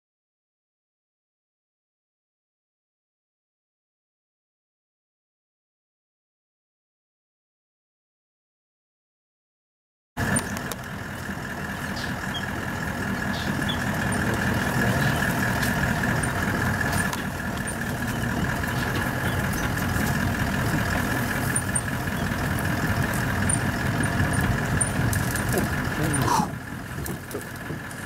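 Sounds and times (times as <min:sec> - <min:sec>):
vehicle engine idling: 0:10.2 - 0:28.0.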